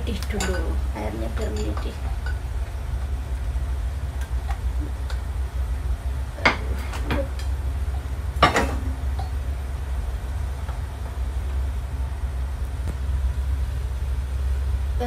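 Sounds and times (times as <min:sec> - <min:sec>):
steady low hum: 0:00.0 - 0:15.0
metal cookware clinking: 0:00.1 - 0:02.4.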